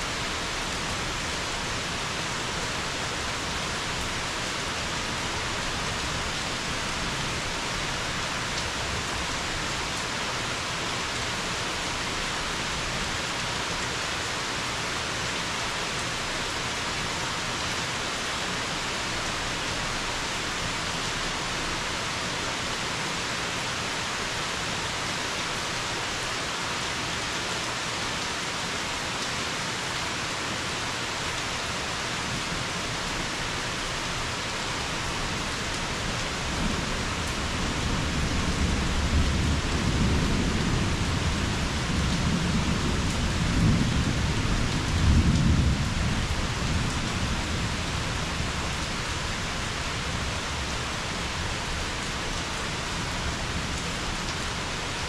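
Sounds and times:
steady rain falling: 0:00.0 - 0:55.0
thunder rumbling: 0:36.3 - 0:47.9.

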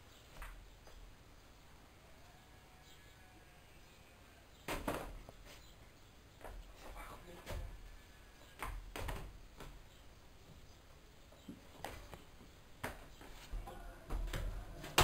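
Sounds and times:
footsteps on tiled floor: 0:11.4 - 0:15.0.

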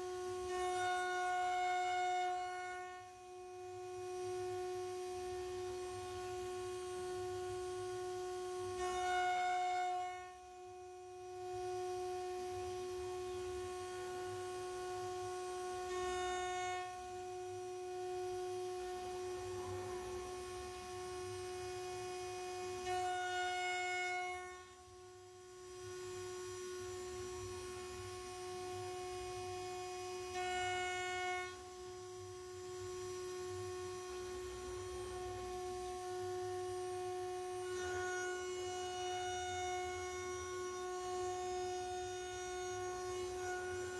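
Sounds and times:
router spindle whining: 0:33.9 - 0:43.9.

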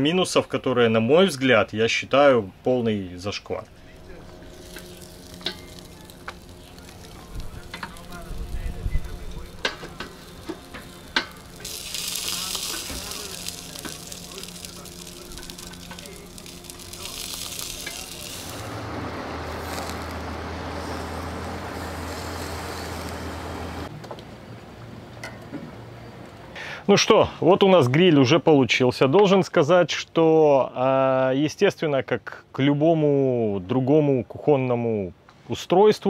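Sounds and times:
gas burner flame rushing: 0:03.7 - 0:23.9
meat sizzling on a grill: 0:03.8 - 0:23.9
metal tongs clicking on grate: 0:04.6 - 0:06.5, 0:09.6 - 0:18.1.

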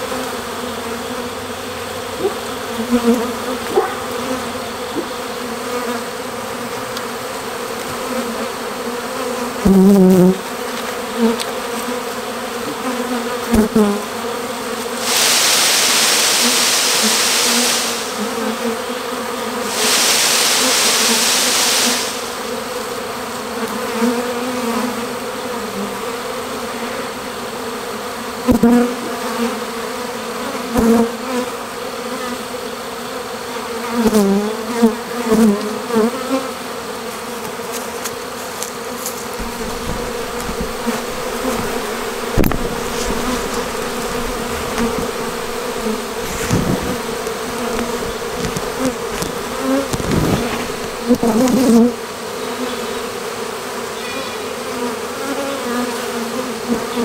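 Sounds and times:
single bees droning past: 0:00.0 - 0:37.6, 0:38.2 - 0:57.0
bee swarm buzzing: 0:00.0 - 0:57.0
tree limb rustling hiss: 0:14.8 - 0:18.6, 0:19.6 - 0:22.8, 0:37.7 - 0:51.7.

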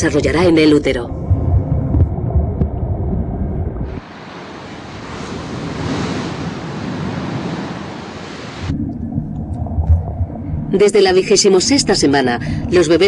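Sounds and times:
low muffled rumble: 0:00.0 - 0:07.8, 0:08.4 - 0:13.0
wind buffeting microphone: 0:00.9 - 0:10.8
surf breaking on beach: 0:03.9 - 0:08.7.

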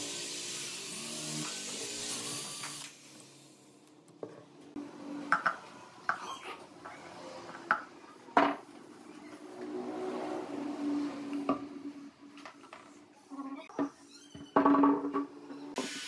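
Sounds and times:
cordless drill boring into wood: 0:00.0 - 0:03.4.

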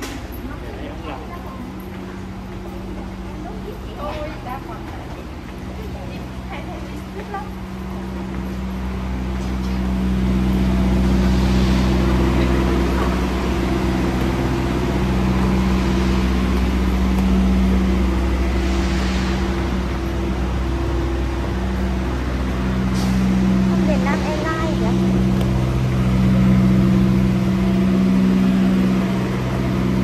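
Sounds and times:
engine hum: 0:00.0 - 0:30.0
held low tones: 0:07.6 - 0:30.0
hiss: 0:14.4 - 0:23.6.

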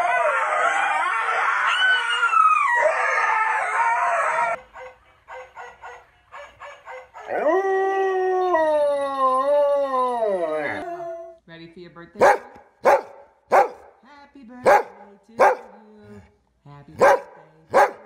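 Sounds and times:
dogs howling: 0:00.0 - 0:04.6, 0:06.8 - 0:11.3.

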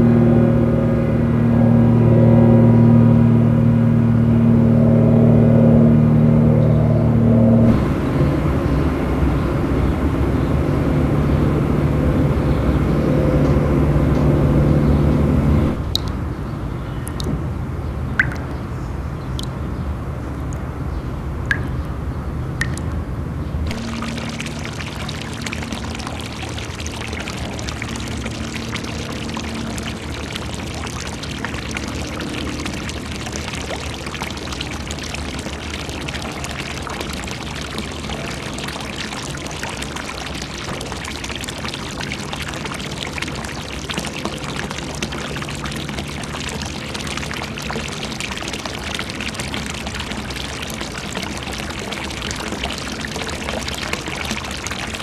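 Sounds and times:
low rumble: 0:00.0 - 0:09.8
water pouring and splashing: 0:15.6 - 0:16.2, 0:18.2 - 0:18.6, 0:22.6 - 0:23.0, 0:23.6 - 0:55.0.

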